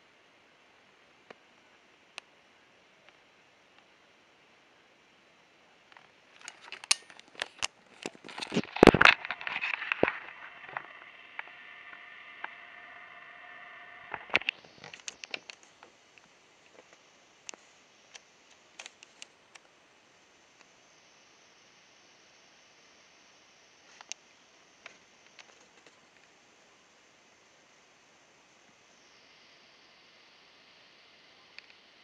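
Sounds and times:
steady hum: 0.0s - 32.0s
scattered ticks: 14.1s - 19.7s.

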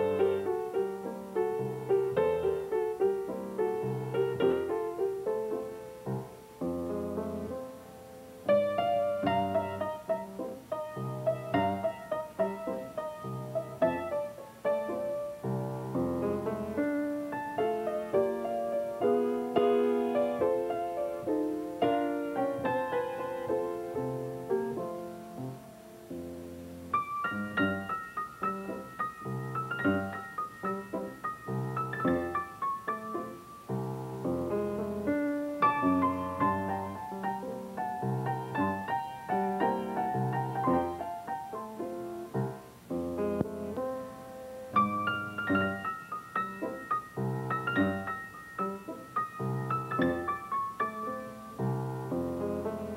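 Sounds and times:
piano music: 0.0s - 52.9s.

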